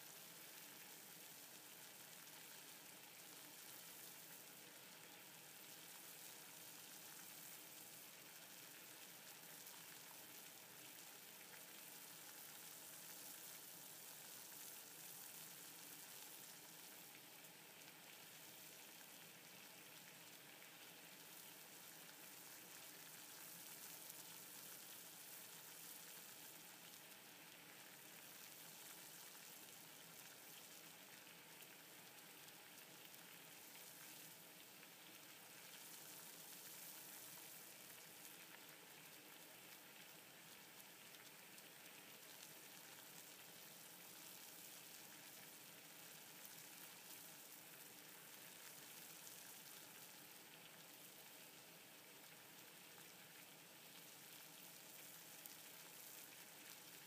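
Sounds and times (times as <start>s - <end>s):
water boiling in a pot: 0.0s - 57.0s.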